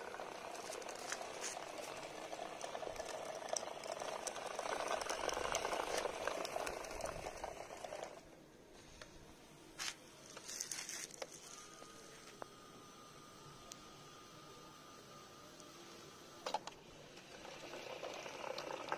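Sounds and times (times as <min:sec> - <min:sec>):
small gear motor running: 0:00.0 - 0:08.3, 0:09.8 - 0:18.9
wheels rattling on concrete: 0:00.0 - 0:08.3.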